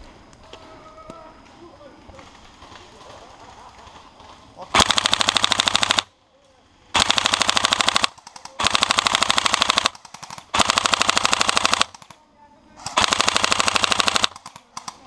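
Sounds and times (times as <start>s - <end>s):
airsoft rifle full-auto bursts: 4.7s - 6.1s, 6.9s - 12.2s, 12.8s - 15.0s.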